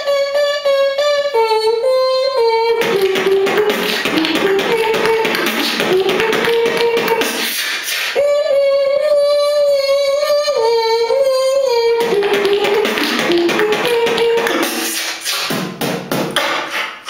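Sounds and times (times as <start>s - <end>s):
hummed melody: 0.0s - 7.4s, 8.2s - 15.0s
beatboxing drum sounds: 2.8s - 8.2s, 12.0s - 17.0s
held vocal tone: 2.8s - 15.6s.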